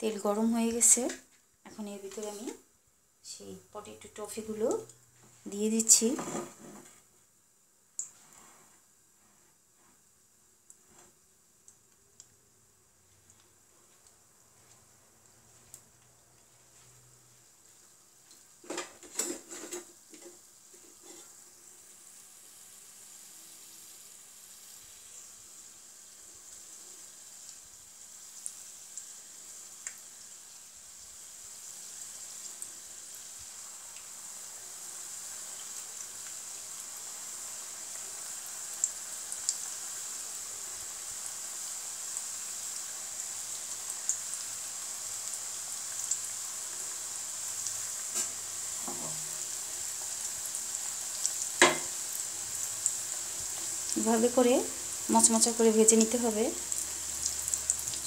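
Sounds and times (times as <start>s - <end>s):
hot oil sizzling: 0.0s - 7.0s, 7.7s - 58.0s
sharp pops of frying: 18.3s - 21.3s, 29.8s - 30.2s, 47.6s - 54.0s.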